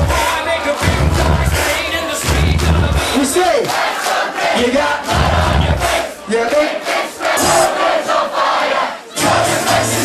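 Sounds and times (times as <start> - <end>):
club dance music with heavy bass: 0.0 - 3.8, 4.6 - 6.5
crowd shouting and singing along: 0.0 - 10.0.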